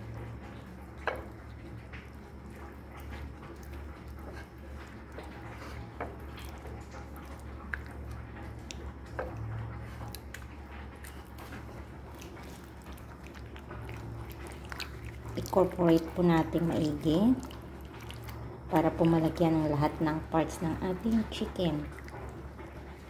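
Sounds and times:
raw chicken squelching: 2.1s - 19.4s.

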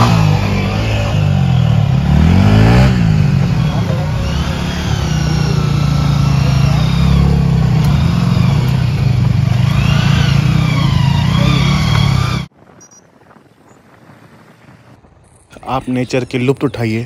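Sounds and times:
motorcycle engine running: 0.0s - 12.6s.

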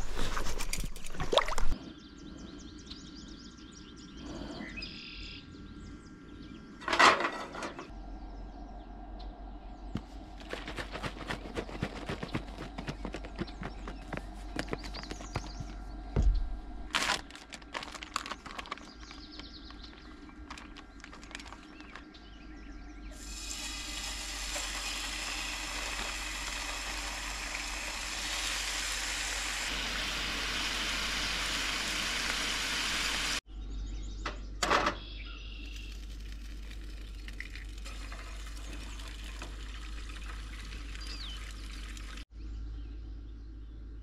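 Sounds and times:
bacon sizzling in a frying pan: 23.2s - 33.4s
egg frying hiss: 23.2s - 33.4s.

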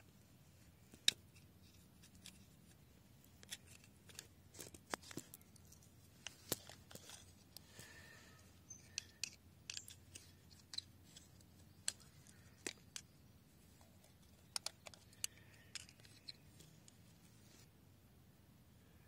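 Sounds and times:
hook tool clicking and scraping metal: 8.7s - 13.1s, 14.0s - 16.7s.

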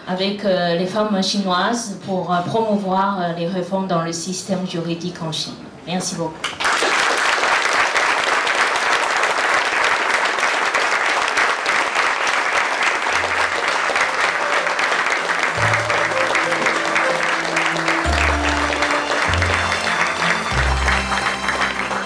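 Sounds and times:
audience applauding: 6.4s - 22.0s
music with low held notes: 15.5s - 22.0s.

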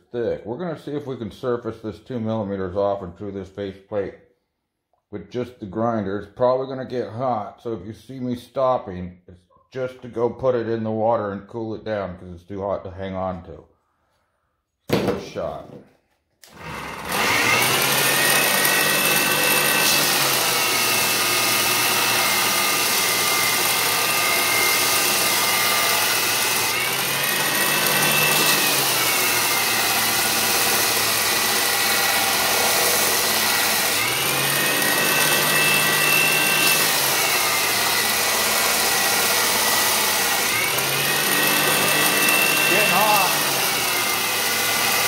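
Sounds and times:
belt grinder motor whine: 16.4s - 45.0s.

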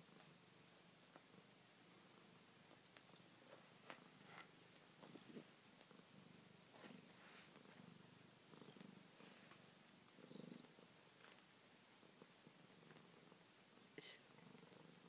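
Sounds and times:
cat purring softly: 0.0s - 15.0s
soft ticks: 2.7s - 3.1s.

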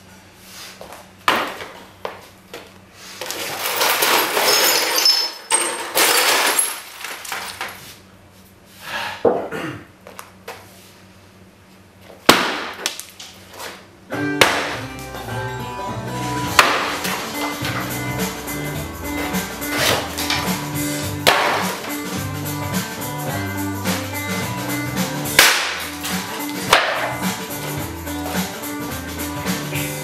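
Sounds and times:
wood breaking and clattering: 3.3s - 7.8s, 16.4s - 18.0s, 19.2s - 22.0s, 25.4s - 27.2s.

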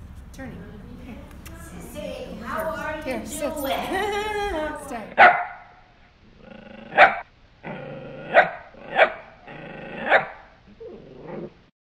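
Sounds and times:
dog barking: 5.2s - 5.8s, 6.9s - 7.3s, 8.3s - 9.3s, 10.0s - 10.5s
dog growling: 6.2s - 11.7s.

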